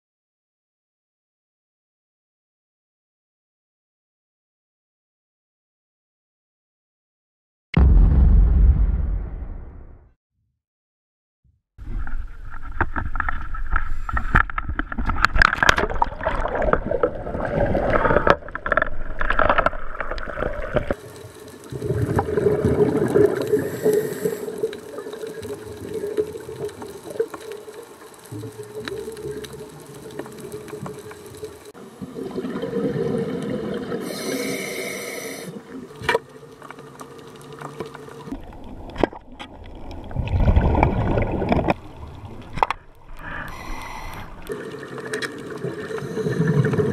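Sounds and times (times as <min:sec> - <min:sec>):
rough water and handling noise: 0:11.8 - 0:34.3, 0:35.6 - 0:46.9.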